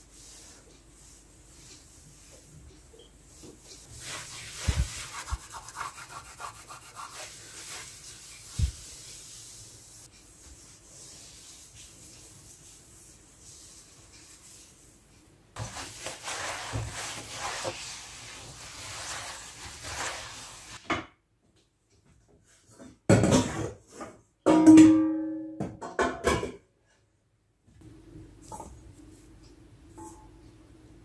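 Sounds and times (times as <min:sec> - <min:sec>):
cloth rubbing on cooktop: 0:00.0 - 0:15.0, 0:15.6 - 0:20.8.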